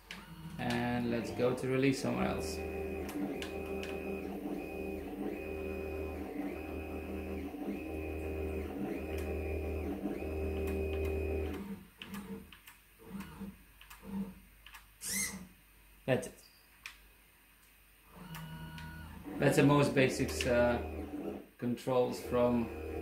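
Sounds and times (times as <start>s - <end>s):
stepper motors whining: 0.0s - 11.7s, 18.2s - 21.4s, 22.1s - 23.0s.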